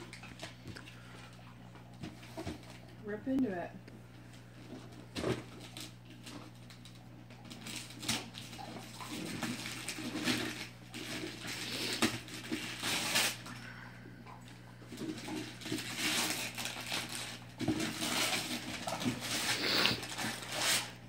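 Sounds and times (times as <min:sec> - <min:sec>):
wrapping paper tearing and crinkling: 0:04.6 - 0:13.6, 0:14.9 - 0:21.0.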